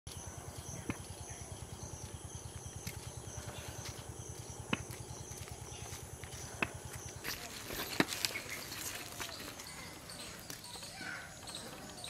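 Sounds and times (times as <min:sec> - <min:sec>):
insects chirring: 0:00.1 - 0:12.0
pulsing insect chirp: 0:00.1 - 0:12.0.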